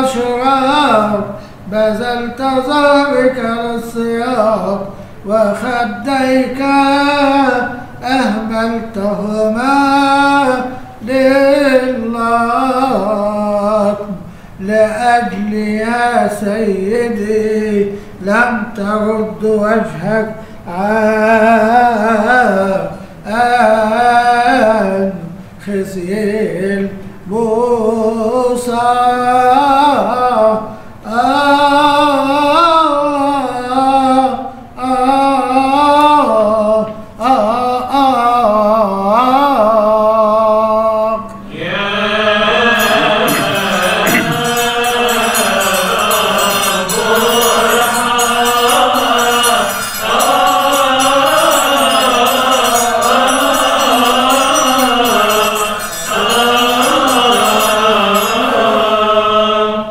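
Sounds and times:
male voices chanting response: 41.5 - 59.9
man chanting solo: 41.6 - 59.0.

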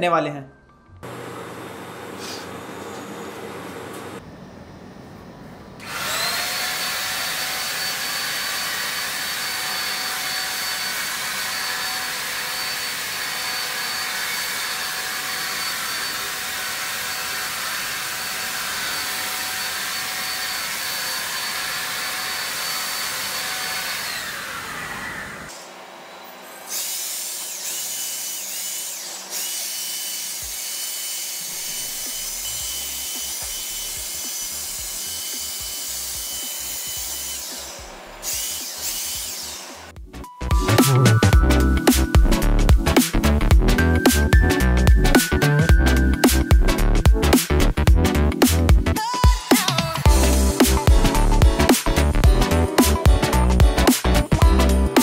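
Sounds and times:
paint sprayer motor whining: 5.8 - 40.0.

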